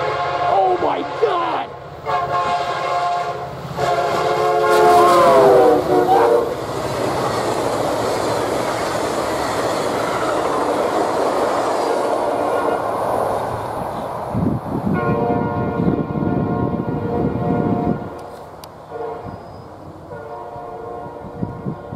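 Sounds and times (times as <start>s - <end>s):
locomotive air horn blasts: 0.0s - 0.6s, 2.0s - 6.6s, 14.9s - 21.9s
train cars rushing and clattering: 0.0s - 21.9s.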